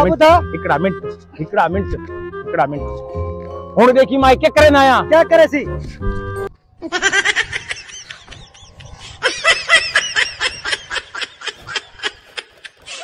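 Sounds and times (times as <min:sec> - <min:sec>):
high-pitched laughter: 0:06.8 - 0:13.0.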